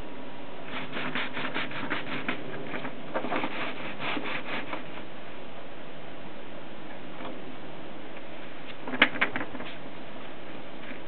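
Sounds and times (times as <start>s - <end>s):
paper rubbing: 0.7s - 5.0s.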